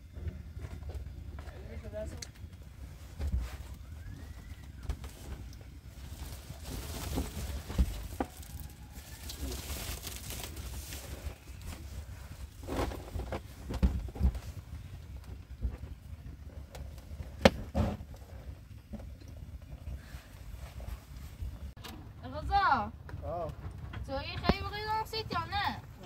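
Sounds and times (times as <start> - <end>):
rustling: 1.5 - 18.7.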